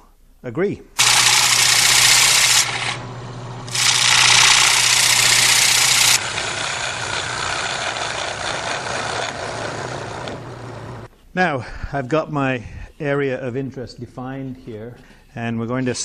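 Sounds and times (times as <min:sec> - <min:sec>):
lathe humming: 0:01.0 - 0:11.1
turning tool hissing cut: 0:01.0 - 0:11.1.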